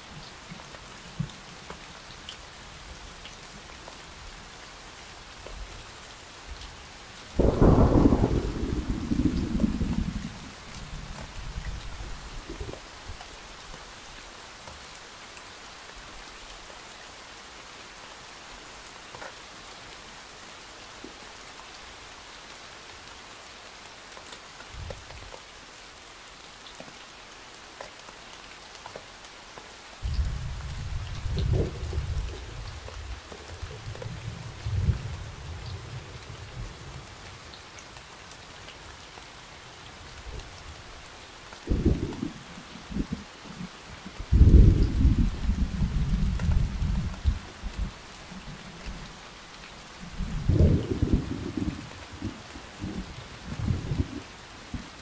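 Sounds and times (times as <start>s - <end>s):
rain falling steadily: 0.0s - 55.0s
rolling thunder rumble: 7.4s - 10.6s, 30.1s - 36.8s, 41.6s - 43.2s, 44.2s - 48.0s, 50.1s - 54.2s.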